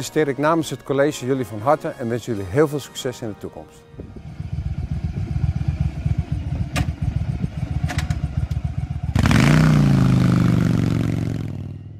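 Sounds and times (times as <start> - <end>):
motorcycle engine idling and revving: 4.0 - 11.9.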